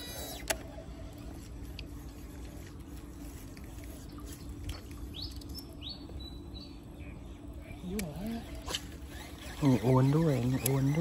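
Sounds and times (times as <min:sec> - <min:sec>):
fishing reel brake whine: 0:00.0 - 0:04.5, 0:07.7 - 0:11.0.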